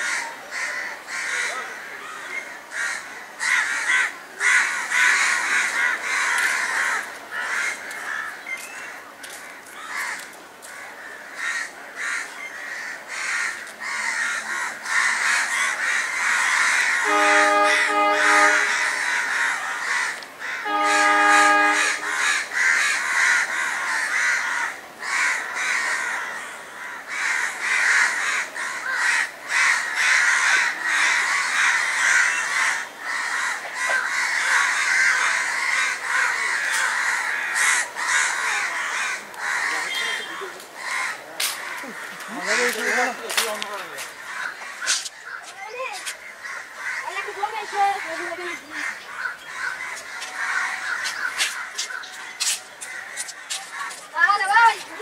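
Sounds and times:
crows cawing: 0.0 - 55.0
train horn blasts: 17.0 - 19.2, 20.6 - 22.4.

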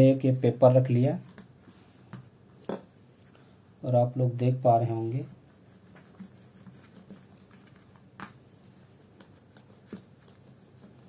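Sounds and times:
rolling pin rubbing clay: 5.0 - 11.0.

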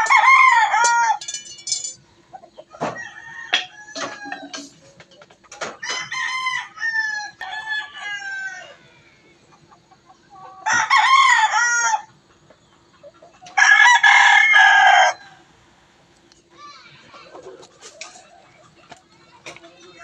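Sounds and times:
rooster crowing loudly: 0.0 - 1.2, 2.8 - 4.6, 5.8 - 8.9, 10.6 - 12.1, 13.6 - 15.4
roosters calling: 0.0 - 20.0.

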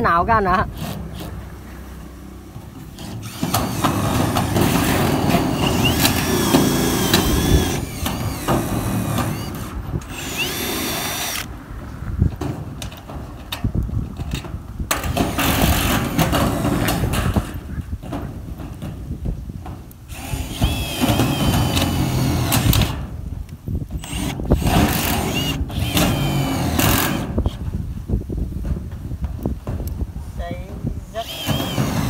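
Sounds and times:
power drill driving screws into metal: 3.0 - 11.5, 14.9 - 17.5, 20.1 - 23.1, 24.0 - 27.6, 31.2 - 32.0.

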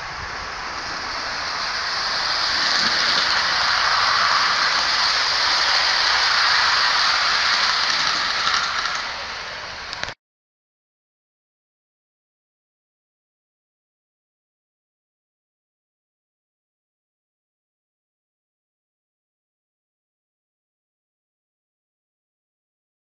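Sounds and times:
model train wheels rattling on rails: 0.0 - 10.2.

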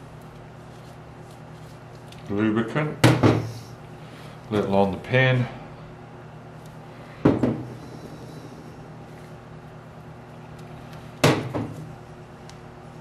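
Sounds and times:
steady low hum: 0.0 - 13.0
objects knocking on workbench tray: 3.0 - 3.5, 7.2 - 7.8, 11.2 - 11.8.

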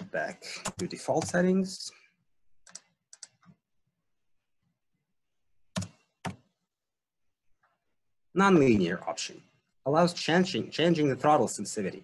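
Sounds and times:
computer keyboard and mouse clicks: 2.6 - 3.6, 5.7 - 6.5.

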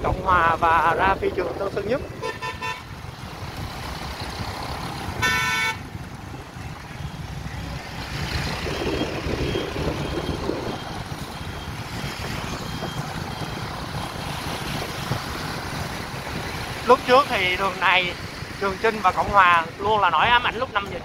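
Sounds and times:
street traffic rumbling: 0.0 - 21.0
vehicle horn honk: 2.2 - 2.8, 5.2 - 5.8.

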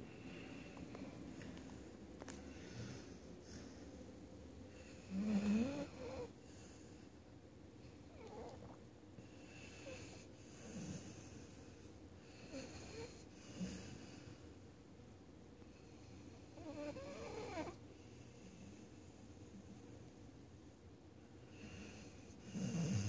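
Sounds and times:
dog snoring: 4.7 - 6.9, 8.1 - 11.5, 12.2 - 14.4, 15.7 - 18.8, 21.5 - 23.0.

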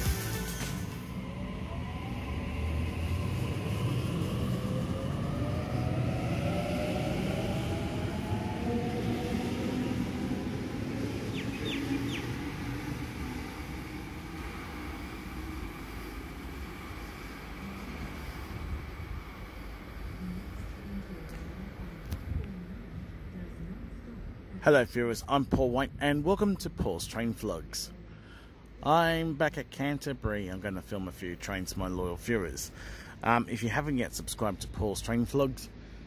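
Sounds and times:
train traction motors whining: 0.0 - 22.1
wheels rumbling on rail: 0.0 - 27.5.

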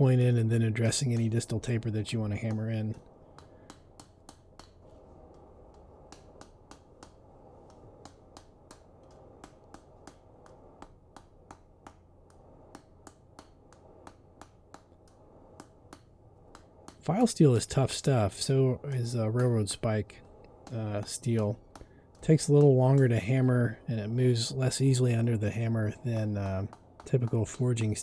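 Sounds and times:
low steady hum: 0.0 - 28.0
hammer striking steel on anvil: 2.4 - 4.9, 5.7 - 17.7.

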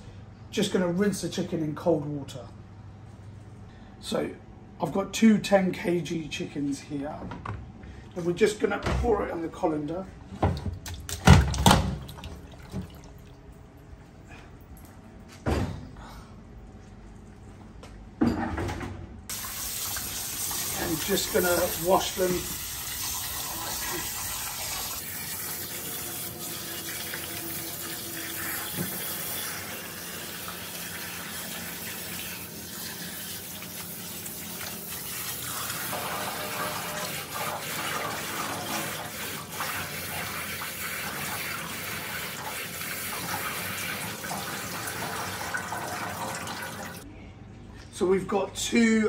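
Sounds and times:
water spraying from sink sprayer: 19.3 - 47.0.

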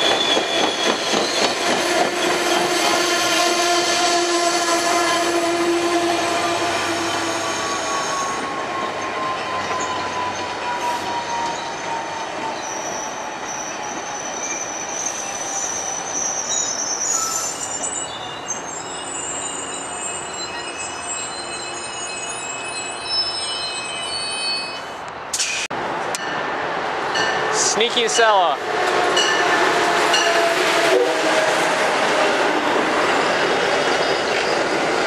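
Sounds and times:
train wheels rumbling: 0.0 - 16.2
high-pitched wheel squeal: 6.8 - 25.0, 33.1 - 34.7.

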